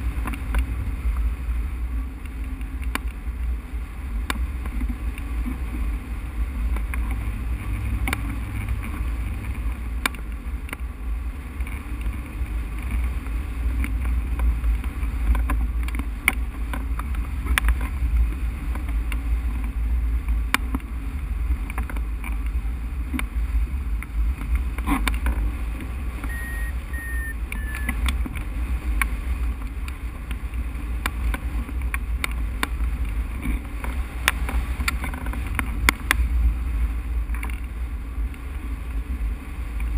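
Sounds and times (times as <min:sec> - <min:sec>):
clicks and ticks: 0:26.2 - 0:36.2
high beeps: 0:26.3 - 0:28.0.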